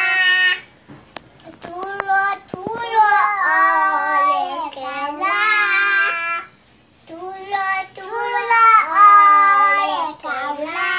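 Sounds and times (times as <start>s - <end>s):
children singing: 2.8s - 6.5s, 7.2s - 10.9s.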